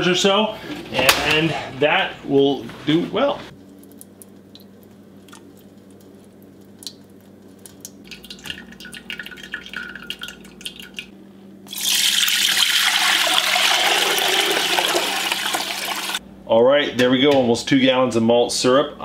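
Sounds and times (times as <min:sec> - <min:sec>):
liquid pouring through strainer: 0:03.7 - 0:11.1, 0:11.7 - 0:16.2.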